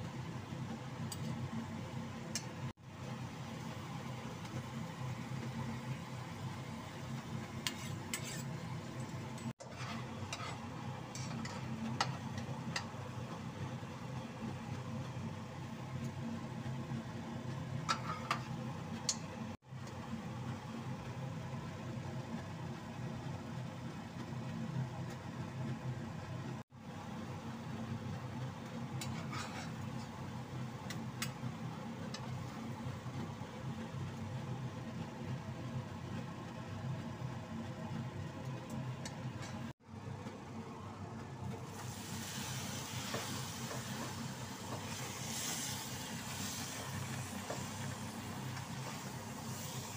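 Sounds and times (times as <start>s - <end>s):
metal spatula scraping a wok: 7.6s - 8.7s, 9.6s - 11.7s, 29.0s - 29.9s.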